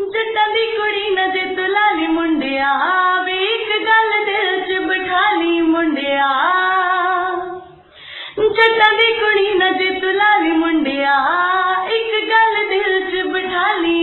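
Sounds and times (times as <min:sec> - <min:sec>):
woman singing: 0:00.0 - 0:14.0.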